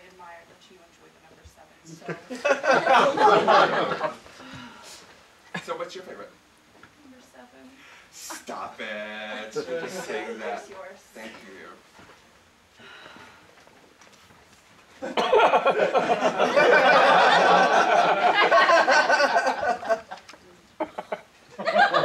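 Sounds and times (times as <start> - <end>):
audience laughing: 2.2 - 4.3, 15.0 - 22.0.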